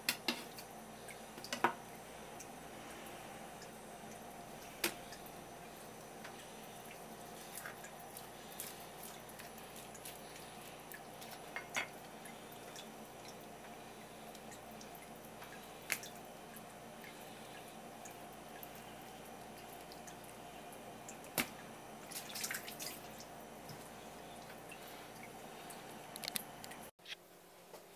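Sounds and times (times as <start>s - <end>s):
low room hum: 0.0s - 27.9s.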